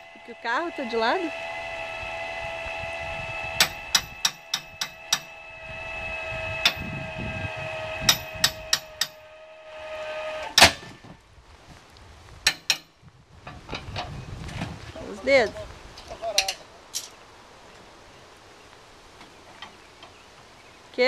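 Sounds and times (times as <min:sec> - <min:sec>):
electric jack motor humming: 0:00.0 - 0:09.2
loud metal clank: 0:03.6 - 0:05.4, 0:08.0 - 0:09.2, 0:10.4 - 0:11.1.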